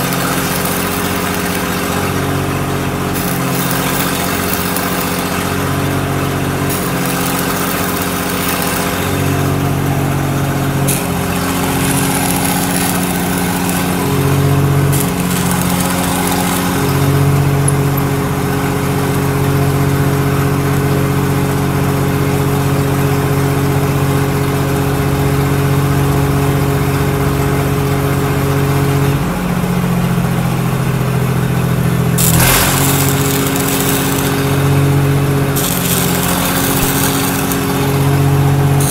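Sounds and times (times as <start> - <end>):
welding machine hum: 0.0 - 38.9
welding arc hiss and crackle: 6.6 - 9.8, 10.7 - 18.0, 32.2 - 38.9.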